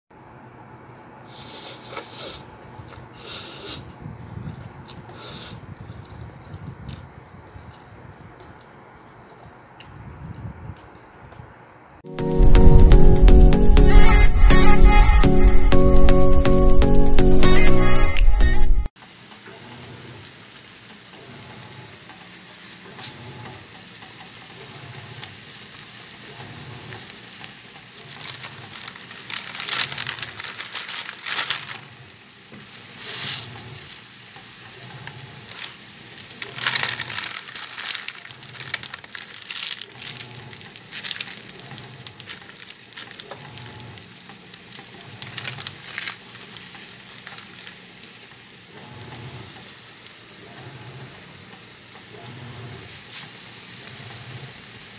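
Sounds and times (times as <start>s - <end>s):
water boiling hard: 19.0s - 50.4s.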